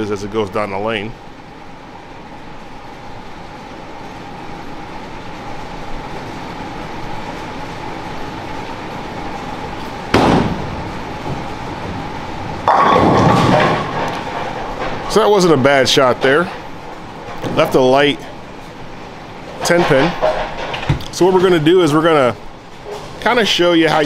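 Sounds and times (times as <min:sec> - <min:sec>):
bowling ball rolling: 0:09.2 - 0:15.7
bowling pins crashing: 0:10.1 - 0:15.2.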